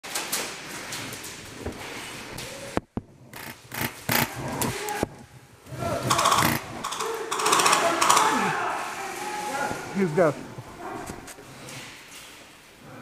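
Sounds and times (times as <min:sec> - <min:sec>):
sharp clacks: 0:06.0 - 0:08.4.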